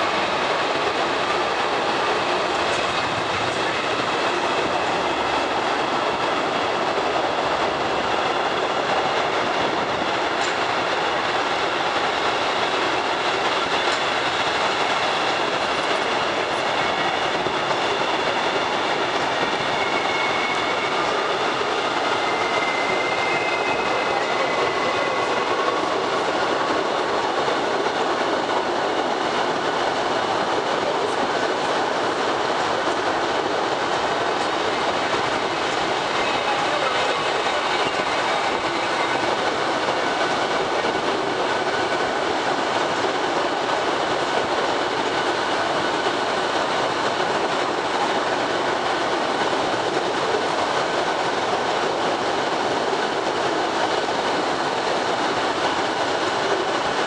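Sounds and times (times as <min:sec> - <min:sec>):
train wheels rattling and rumbling: 0:00.0 - 0:57.0
faint high wheel squeal: 0:19.5 - 0:25.6.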